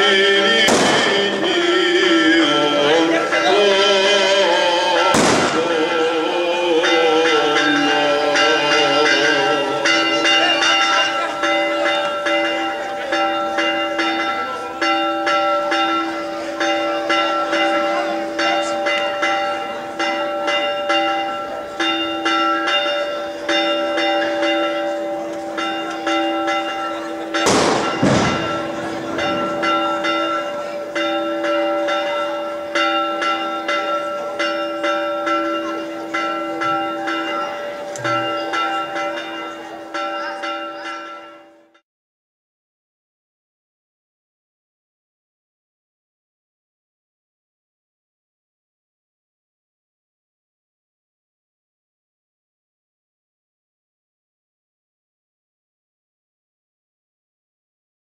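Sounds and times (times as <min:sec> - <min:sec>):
church bells pealing: 0:00.0 - 0:41.8
loud bang: 0:00.6 - 0:01.6, 0:05.1 - 0:06.0, 0:27.5 - 0:29.9.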